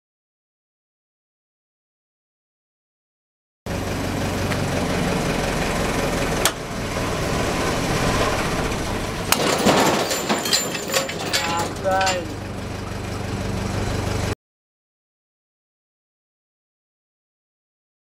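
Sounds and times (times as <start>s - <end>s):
crane engine and hydraulics running: 3.7s - 14.4s
clatter of sling and hardware: 9.3s - 12.4s.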